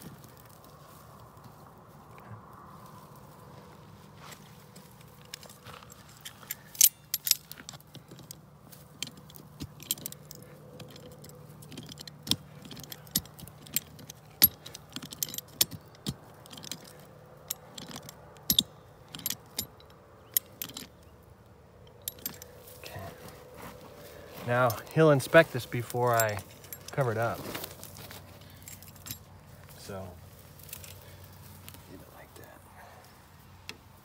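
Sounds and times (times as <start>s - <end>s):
wrench clicking on metal clamp: 9.0s - 20.9s.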